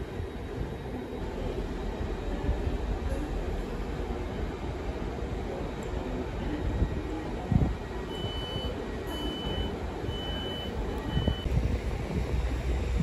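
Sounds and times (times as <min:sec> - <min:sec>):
diesel trains rumbling: 0:00.0 - 0:13.0
electronic warning beeps: 0:08.1 - 0:11.5.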